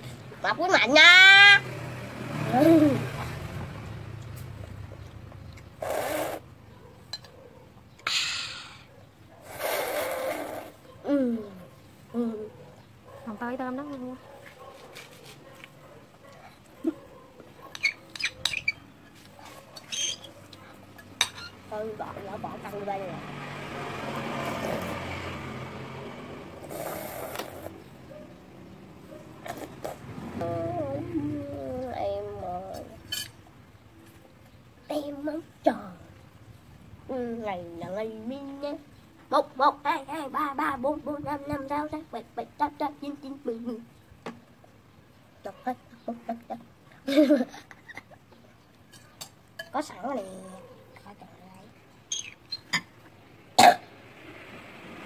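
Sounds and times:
boy slurping soup: 0:05.8 - 0:06.4, 0:09.4 - 0:10.8, 0:26.6 - 0:27.8, 0:29.4 - 0:30.1.

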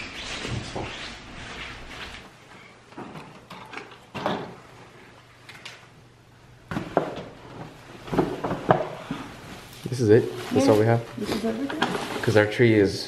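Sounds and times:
boxes and bags being moved: 0:06.7 - 0:12.7.

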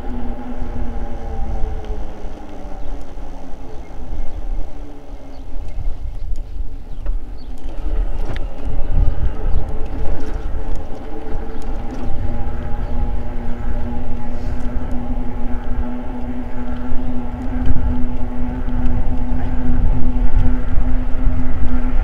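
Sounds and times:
electric motor whining: 0:00.0 - 0:22.0
wind buffeting microphone: 0:00.0 - 0:22.0.

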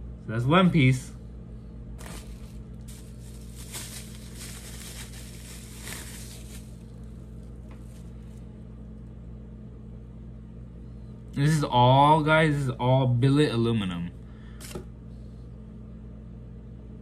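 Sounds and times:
steady low hum: 0:00.0 - 0:17.0
soft rustling and handling: 0:02.0 - 0:08.5.

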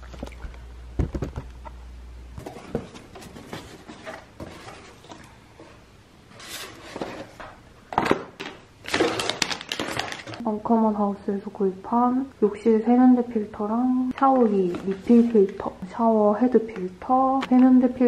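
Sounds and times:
plastic and paper wrapping rustling: 0:02.4 - 0:05.2, 0:06.3 - 0:07.5, 0:08.8 - 0:10.4, 0:14.4 - 0:15.7.

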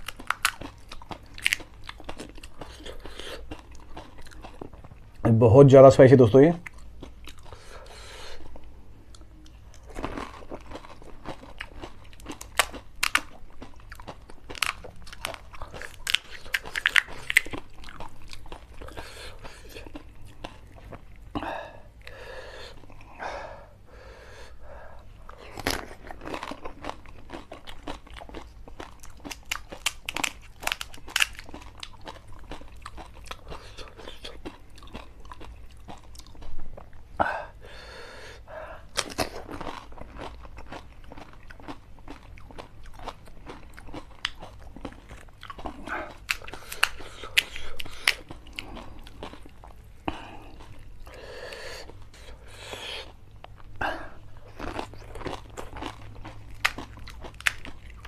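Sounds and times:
wet chewing: 0:06.6 - 0:21.3, 0:38.9 - 0:58.0
crisp shells crunching: 0:25.4 - 0:36.0.

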